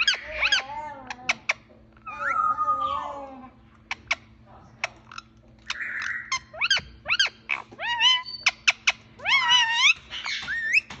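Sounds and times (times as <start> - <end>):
parakeet warbled calls: 0.0 - 3.2, 3.9 - 11.0
parakeet clicks and chirps: 3.9 - 11.0.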